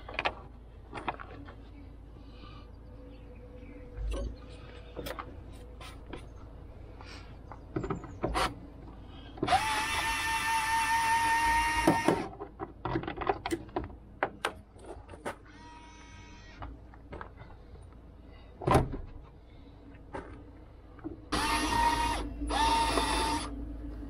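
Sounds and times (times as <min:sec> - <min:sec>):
clicks and knocks of handling: 0:00.0 - 0:01.6
cordless drill whining: 0:09.5 - 0:12.3, 0:21.3 - 0:23.5.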